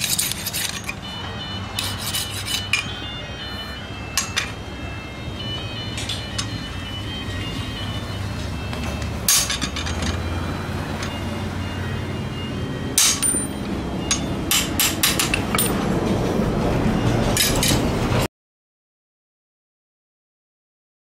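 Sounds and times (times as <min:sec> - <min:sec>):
hammer striking steel blade: 0:12.9 - 0:15.8, 0:17.4 - 0:17.9.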